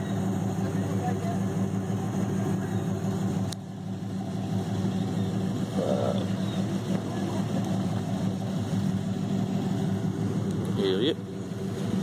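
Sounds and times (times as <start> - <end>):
truck engine running under load: 0.0 - 12.0.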